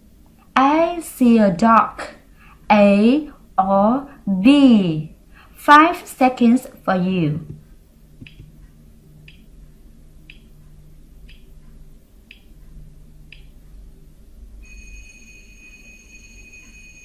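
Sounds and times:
timer ticks: 8.2s - 13.8s
high alarm clock ring: 14.6s - 17.0s.

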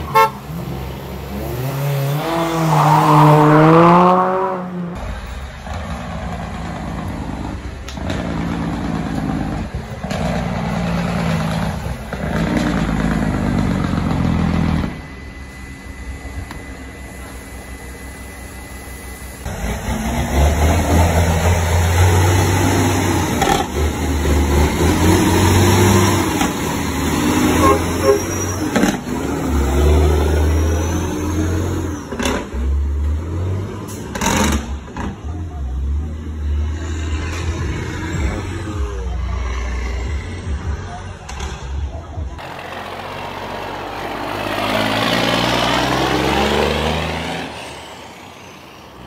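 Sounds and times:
diesel truck engines revving: 0.0s - 49.0s
loud wavering tone: 13.8s - 19.5s.

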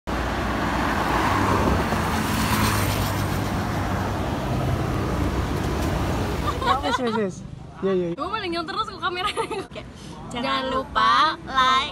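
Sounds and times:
vehicle passing by: 0.1s - 7.0s
road traffic rumble: 0.1s - 11.9s.

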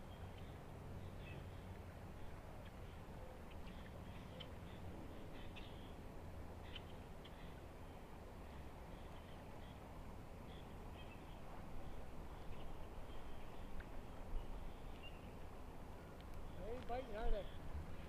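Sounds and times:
flowing river water: 0.0s - 18.0s.

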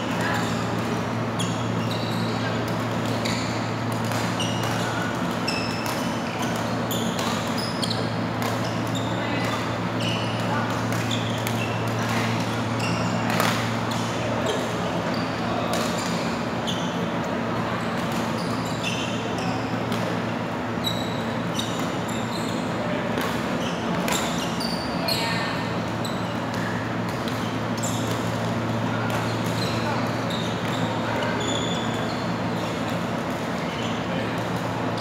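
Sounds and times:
shoe squeaks on court floor: 1.3s - 13.8s, 14.4s - 17.1s, 17.8s - 19.8s, 20.8s - 22.8s, 23.6s - 26.7s, 27.4s - 28.5s, 29.2s - 32.8s, 33.6s - 34.2s.

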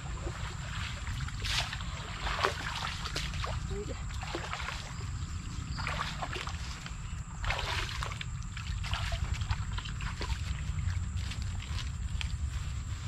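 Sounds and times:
muddy water splashing: 0.0s - 13.0s.

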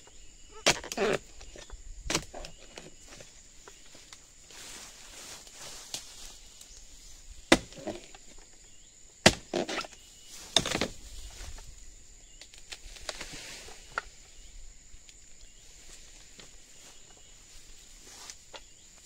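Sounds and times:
rustling leaves: 1.0s - 8.6s
blade chopping fronds: 7.5s - 8.1s, 9.2s - 11.0s.

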